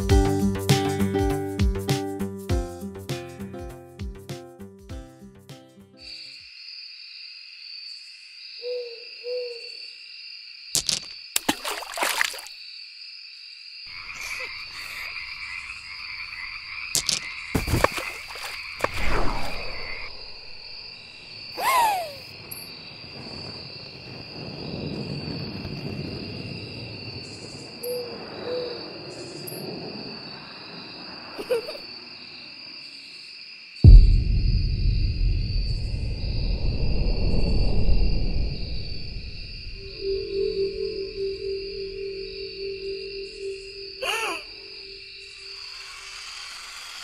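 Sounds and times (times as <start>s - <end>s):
owl hooting: 8.6s - 9.8s, 39.8s - 46.6s
cartoon whooshes: 18.8s - 20.8s
falling whistle: 36.5s - 45.7s
high chirring: 38.9s - 45.8s.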